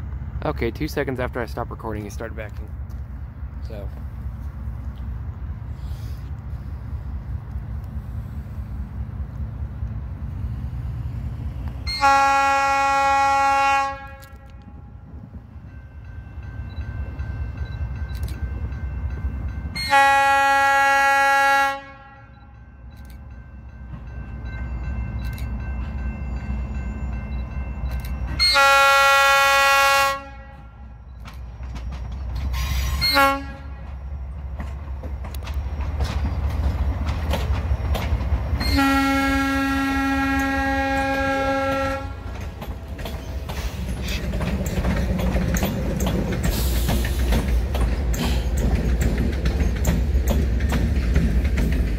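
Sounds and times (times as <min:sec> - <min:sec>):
train engines and wheels rumbling: 0:00.0 - 0:51.9
locomotive air horn blasts: 0:11.8 - 0:14.8, 0:19.8 - 0:22.5, 0:28.4 - 0:31.0, 0:32.6 - 0:33.9, 0:38.6 - 0:42.3.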